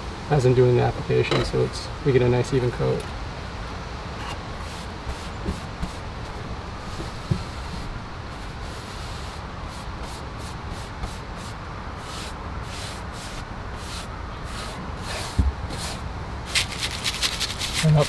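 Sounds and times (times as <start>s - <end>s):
brush swishing on wood: 6.8s - 18.0s.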